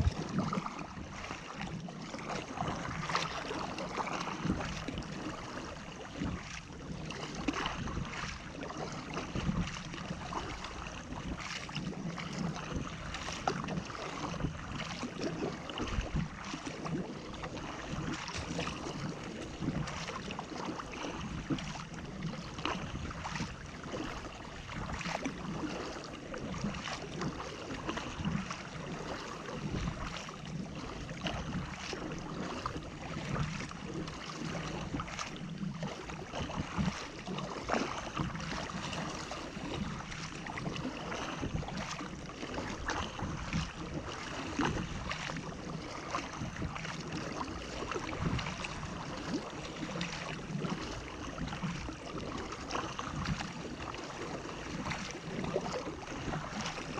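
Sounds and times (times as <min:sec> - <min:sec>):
paddle splashes: 0:00.0 - 0:56.9
water rushing along hull: 0:00.0 - 0:56.9.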